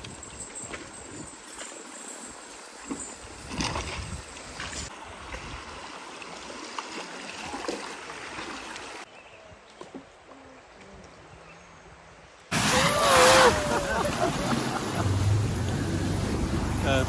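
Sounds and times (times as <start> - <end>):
river water rushing and splashing: 0.0 - 9.1, 12.5 - 17.0.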